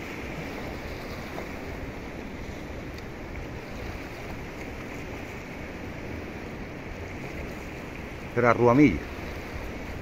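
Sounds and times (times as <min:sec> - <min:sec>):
sea surf rushing: 0:00.0 - 0:10.0
wind rumble on microphone: 0:00.0 - 0:10.0.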